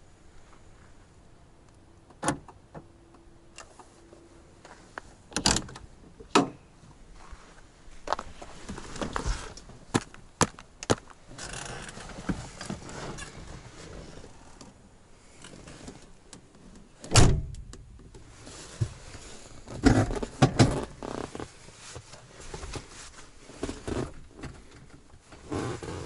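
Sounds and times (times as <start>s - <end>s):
rustling: 18.2s - 26.0s.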